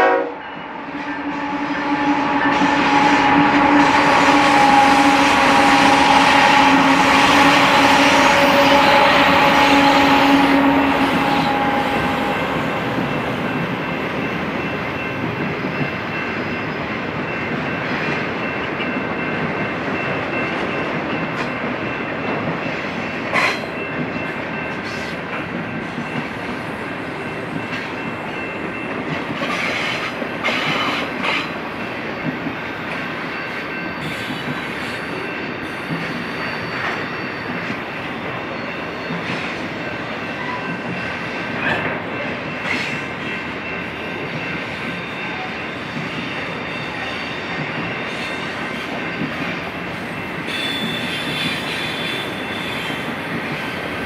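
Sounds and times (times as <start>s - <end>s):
train horn: 0.0s - 14.4s, 50.5s - 53.3s
diesel locomotive engine: 0.0s - 54.0s.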